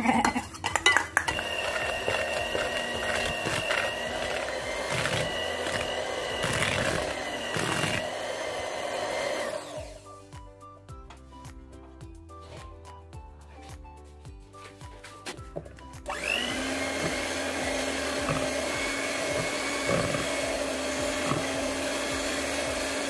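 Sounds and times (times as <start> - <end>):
background music: 0.0 - 23.0
electric hand mixer running: 1.3 - 10.1, 16.1 - 23.0.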